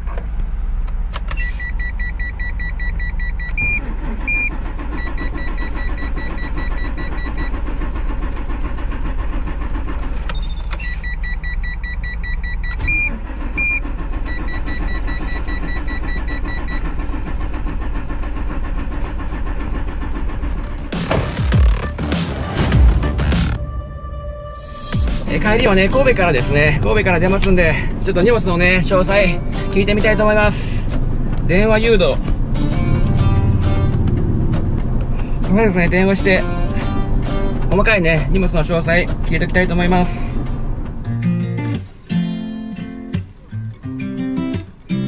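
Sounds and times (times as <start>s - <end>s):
low rumble: 18.9s - 41.2s.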